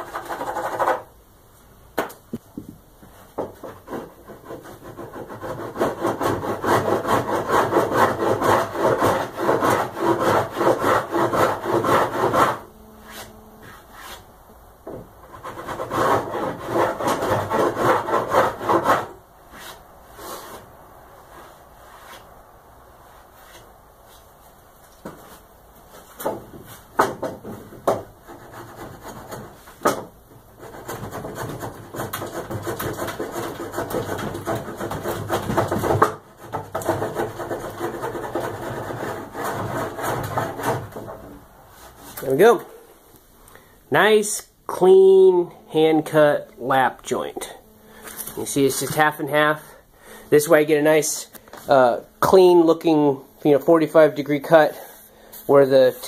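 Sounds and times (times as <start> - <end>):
hand tool rasping wood: 0.0 - 1.1, 3.4 - 14.2, 14.9 - 20.6, 26.1 - 42.6.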